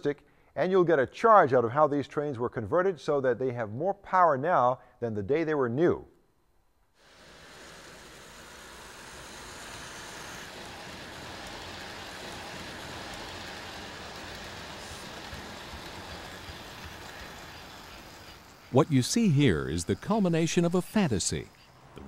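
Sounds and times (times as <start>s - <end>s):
model train wheels rumbling: 7.0s - 22.0s.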